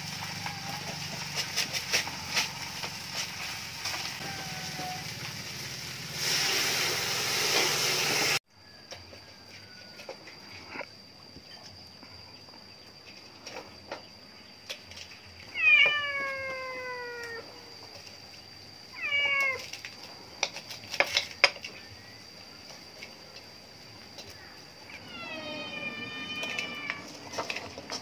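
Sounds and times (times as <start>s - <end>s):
cat meowing: 4.2s - 5.1s, 15.5s - 17.6s, 19.0s - 19.6s, 24.9s - 27.4s.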